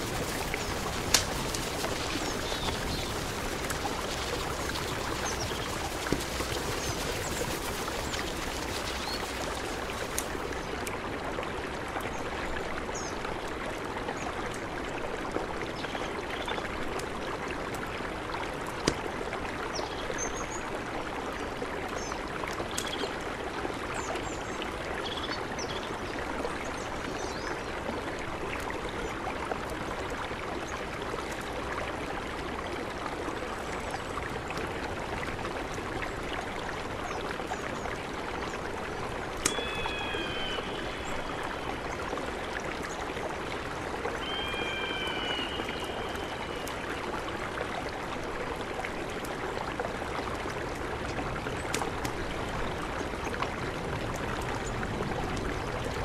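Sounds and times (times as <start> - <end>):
campfire crackling and popping: 0.0 - 11.0, 38.8 - 40.3, 50.3 - 56.0
river rushing: 0.0 - 11.7, 31.6 - 56.0
bird falling cry: 39.5 - 40.8, 44.2 - 46.6
high bird chirps: 39.5 - 41.1.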